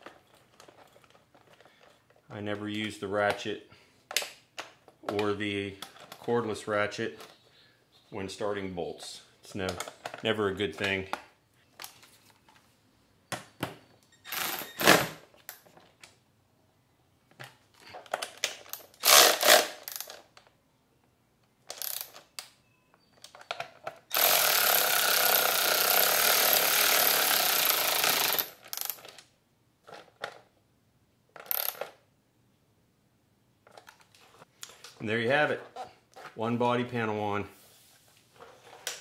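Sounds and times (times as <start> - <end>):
cordless ratchet running: 24.1 - 29.0.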